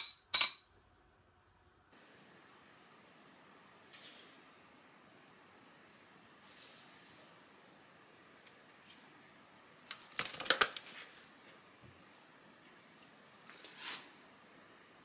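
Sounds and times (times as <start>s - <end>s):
sugar pouring soft hiss: 2.0s - 7.9s.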